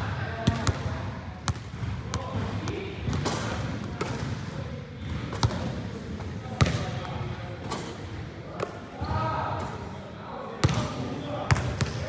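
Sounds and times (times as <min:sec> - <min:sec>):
basketball bouncing on gym floor: 0:00.4 - 0:04.4, 0:05.0 - 0:05.7, 0:06.6 - 0:06.9.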